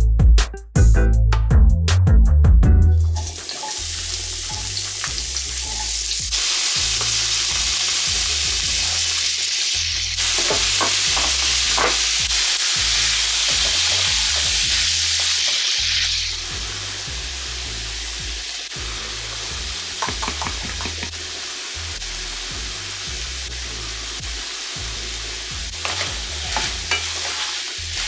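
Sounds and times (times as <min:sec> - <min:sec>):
sausage and onion sizzling: 0:03.0 - 0:28.0
stirring strokes in skillet: 0:25.7 - 0:28.0.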